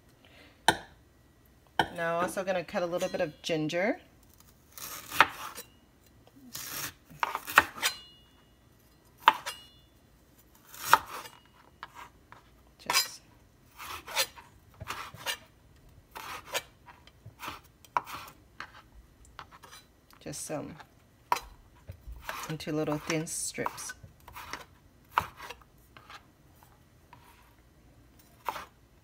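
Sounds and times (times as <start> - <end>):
short metallic ring: 7.8 - 8.4
knife cutting on cutting board: 13.8 - 15.5, 22.2 - 26.2, 28.4 - 28.7.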